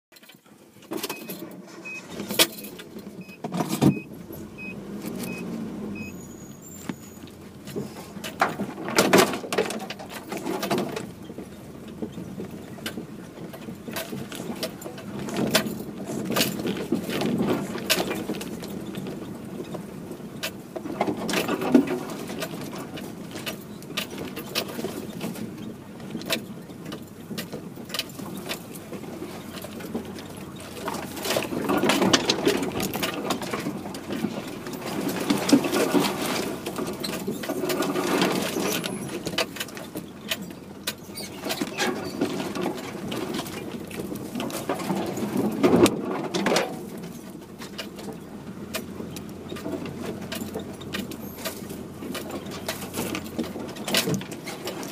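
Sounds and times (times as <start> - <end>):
low engine hum: 0.5 - 54.9
branches scraping vehicle body: 0.8 - 54.9
faint beeping: 1.1 - 7.2.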